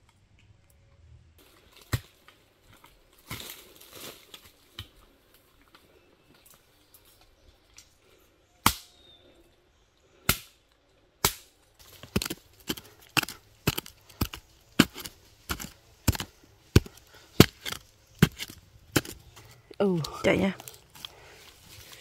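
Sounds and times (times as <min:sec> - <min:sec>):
hoe chopping into earth: 0:11.2 - 0:19.2.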